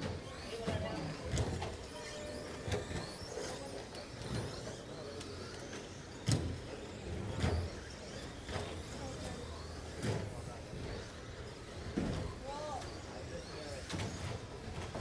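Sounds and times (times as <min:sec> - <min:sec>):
electric motors whining: 0:00.0 - 0:15.0.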